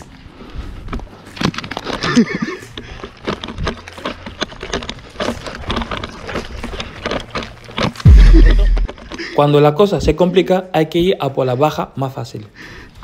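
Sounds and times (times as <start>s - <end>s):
running footsteps on pine needles: 0.0s - 10.2s.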